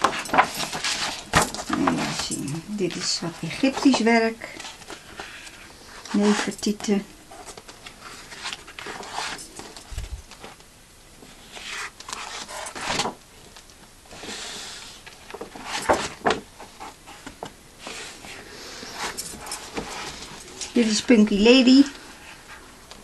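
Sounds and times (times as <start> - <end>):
boards rustling and scraping: 0.0 - 6.5, 11.2 - 20.8.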